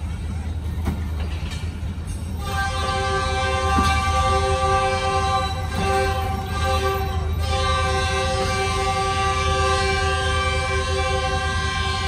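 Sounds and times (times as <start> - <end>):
low train rumble: 0.0 - 12.0
train whistle long blast: 2.4 - 12.0.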